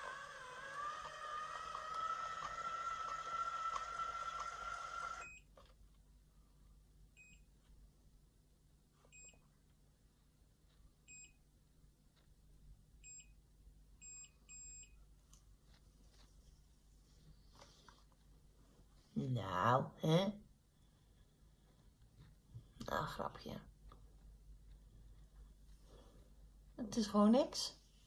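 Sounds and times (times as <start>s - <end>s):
hair curler motor whining: 0.0s - 5.3s
high electronic timer beeps: 14.0s - 15.0s.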